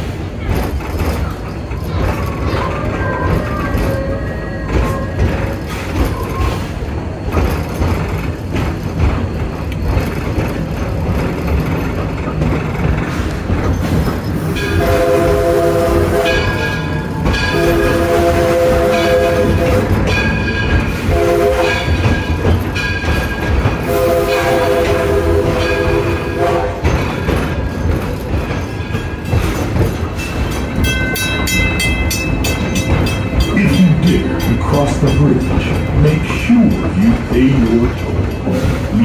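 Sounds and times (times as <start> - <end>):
train rumble and clatter: 0.0 - 39.0
steam train chime whistle: 14.6 - 20.4, 21.0 - 22.1, 23.8 - 26.9.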